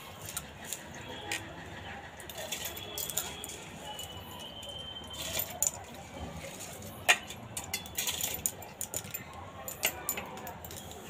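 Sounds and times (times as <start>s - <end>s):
metal kitchen vessels clinking: 0.0s - 11.0s.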